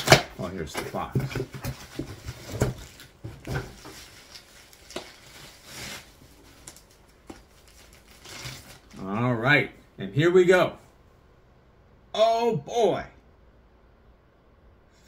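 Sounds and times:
packing rustling: 0:00.0 - 0:09.1.

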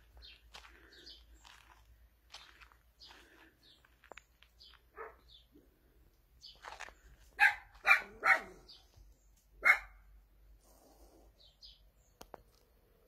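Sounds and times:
dog barking: 0:04.9 - 0:05.3, 0:07.4 - 0:08.7, 0:09.6 - 0:10.1.

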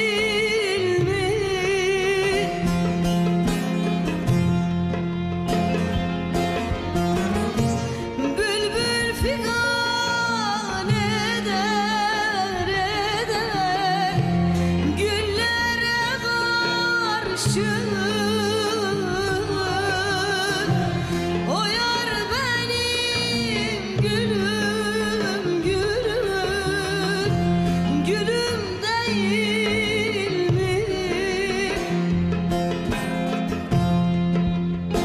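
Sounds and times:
woman singing ornamented melody: 0:00.0 - 0:02.9, 0:08.2 - 0:32.2
instrumental accompaniment: 0:00.0 - 0:35.0.

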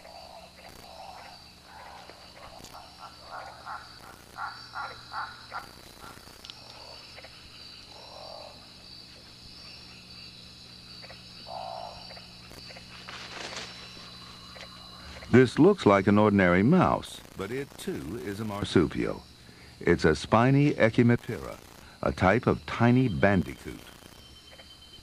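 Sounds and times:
frogs croaking: 0:00.0 - 0:25.0
high insect trill: 0:00.0 - 0:25.0.

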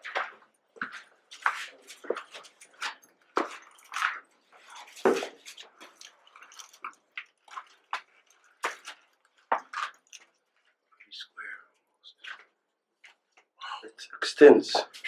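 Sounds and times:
footsteps on gritty rock: 0:00.0 - 0:10.4.

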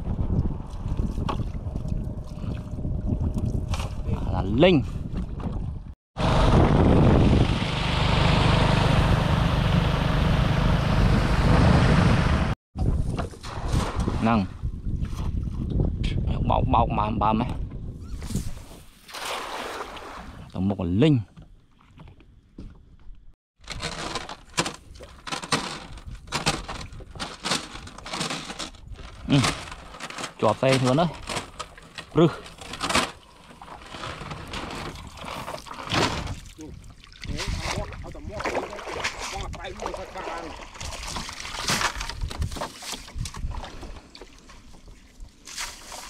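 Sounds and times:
boat motor running: 0:06.2 - 0:12.6
wet net rasping over boat edge: 0:23.6 - 0:36.5.

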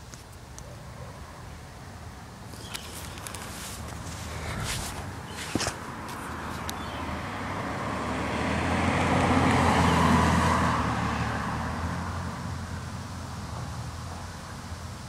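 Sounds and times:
car driving past: 0:06.8 - 0:14.4.

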